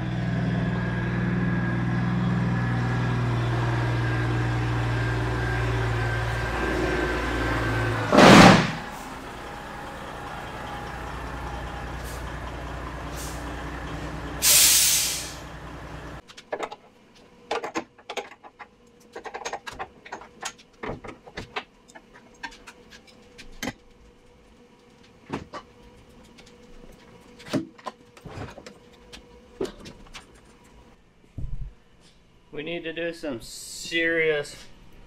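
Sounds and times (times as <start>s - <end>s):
diesel truck engine running: 0.0s - 16.2s
air brake hiss: 13.1s - 13.5s, 14.4s - 15.5s.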